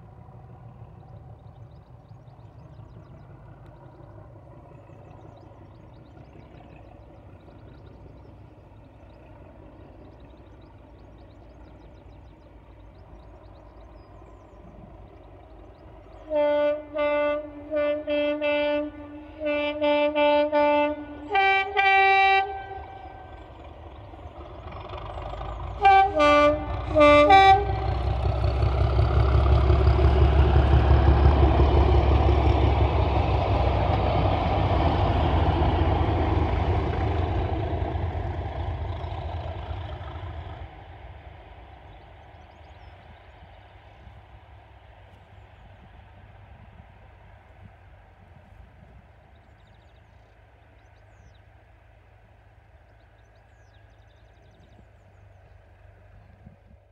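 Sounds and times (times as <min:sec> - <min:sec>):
diesel locomotive engines: 0:00.0 - 0:56.9
train wheels passing: 0:00.0 - 0:56.9
two-tone locomotive horn blasts: 0:16.2 - 0:23.4, 0:25.8 - 0:28.2.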